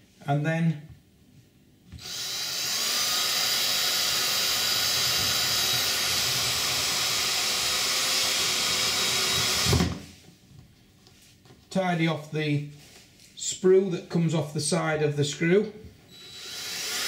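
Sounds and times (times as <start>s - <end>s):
cordless drill whining: 2.0s - 10.0s, 16.1s - 17.0s.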